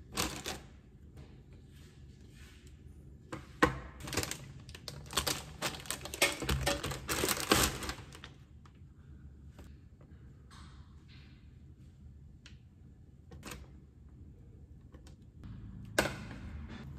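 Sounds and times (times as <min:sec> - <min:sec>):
plastic packaging crinkling: 0:04.0 - 0:08.4.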